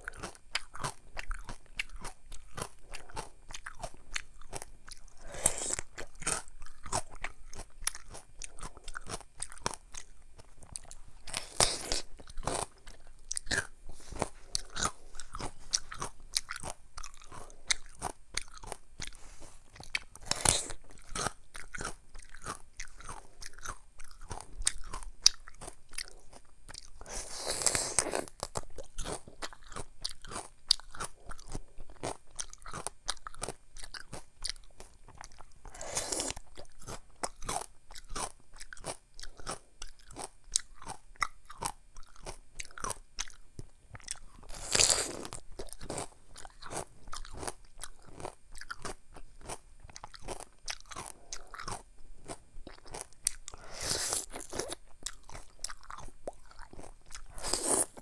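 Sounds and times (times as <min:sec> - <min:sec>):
crunchy chewing of melon: 0:00.0 - 0:58.0.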